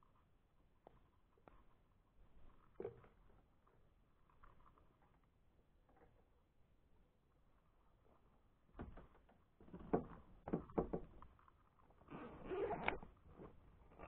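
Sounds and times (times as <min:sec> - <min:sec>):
backpack rustling: 0:12.2 - 0:13.0.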